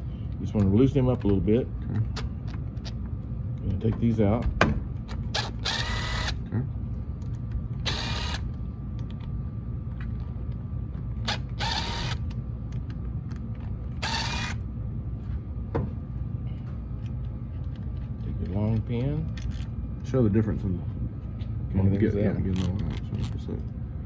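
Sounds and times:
cordless driver whirring: 5.1 - 6.4, 7.7 - 8.6, 11.2 - 12.4, 13.6 - 14.6.

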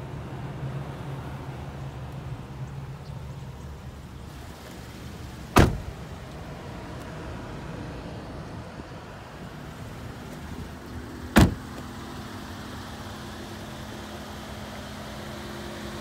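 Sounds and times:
car door slamming: 5.5 - 6.0, 11.3 - 11.9.

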